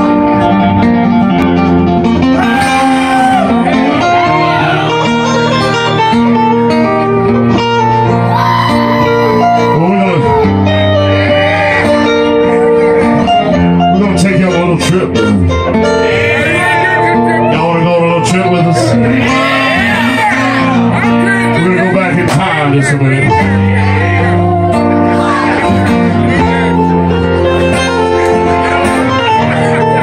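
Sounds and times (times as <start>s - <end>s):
acoustic guitars playing: 0.0s - 30.0s.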